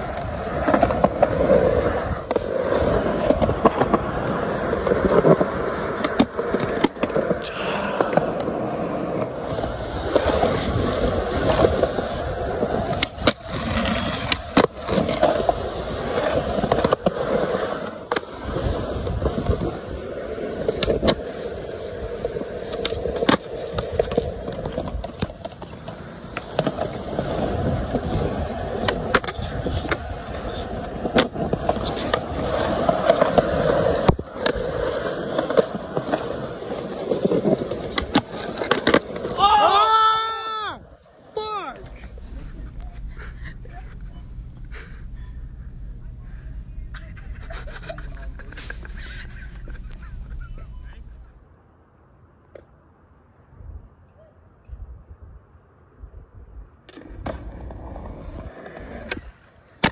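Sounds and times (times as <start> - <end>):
skateboard clacking: 0.0 - 39.8, 56.9 - 59.9
skateboard wheels rolling on concrete: 0.0 - 59.9.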